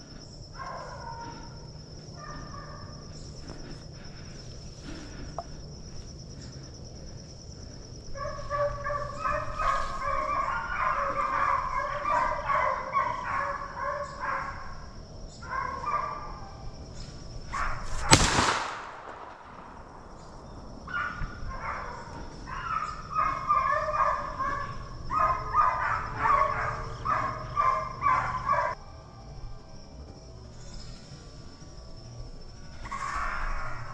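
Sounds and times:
hounds baying: 0:00.0 - 0:05.3, 0:08.0 - 0:16.8, 0:20.3 - 0:28.8.

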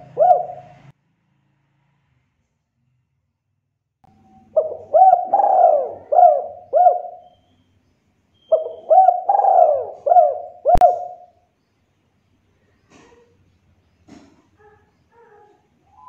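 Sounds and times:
dove cooing: 0:00.0 - 0:00.9, 0:04.2 - 0:07.4, 0:08.5 - 0:11.3.

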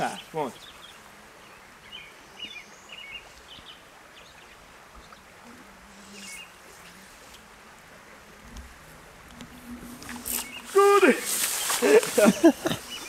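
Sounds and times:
creek water running: 0:00.0 - 0:13.0
high bird chirps: 0:09.7 - 0:11.8.

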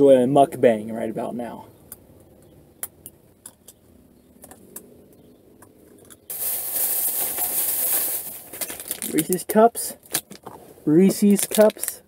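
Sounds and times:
plastic bag crinkling: 0:06.3 - 0:10.5, 0:11.1 - 0:12.0.

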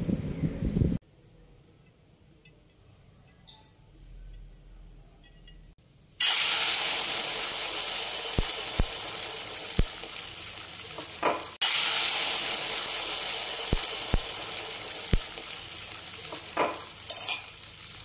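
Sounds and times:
egg sizzling in hot oil: 0:06.2 - 0:18.0.

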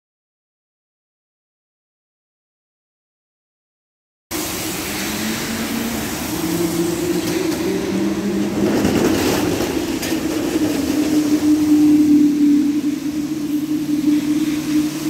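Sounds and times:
tyres hissing on wet road: 0:04.3 - 0:15.0.

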